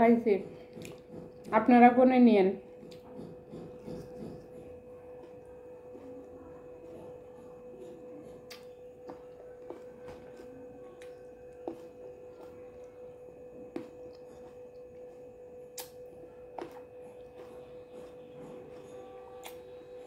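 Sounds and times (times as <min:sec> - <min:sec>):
faint steady hum: 0:00.0 - 0:20.0
wet mouth clicks and lip smacks: 0:15.8 - 0:16.0.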